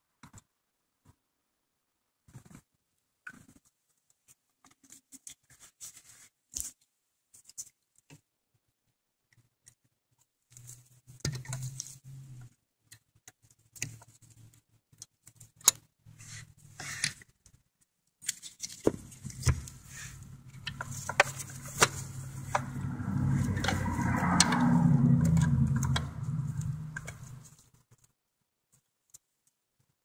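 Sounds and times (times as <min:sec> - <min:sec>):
low hum: 0:19.2 - 0:27.5.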